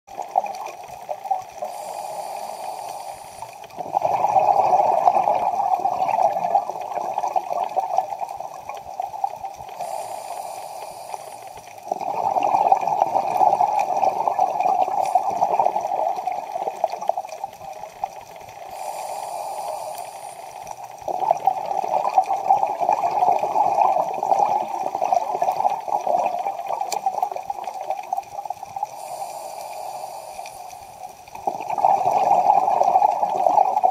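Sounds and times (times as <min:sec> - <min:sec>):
diver inhaling through regulator: 0:01.5 - 0:06.6, 0:09.6 - 0:16.9, 0:18.5 - 0:21.2, 0:28.8 - 0:33.4
exhaled bubbles rushing: 0:03.6 - 0:10.0, 0:11.8 - 0:18.9, 0:20.8 - 0:29.0, 0:31.4 - 0:33.9.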